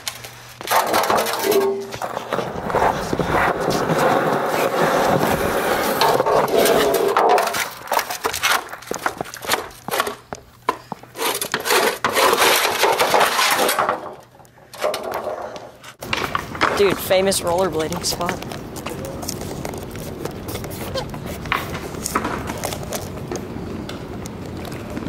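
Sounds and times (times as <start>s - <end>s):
skateboard rolling and scraping: 0.3s - 25.0s
board sliding on concrete edge: 0.6s - 10.2s, 10.9s - 14.2s.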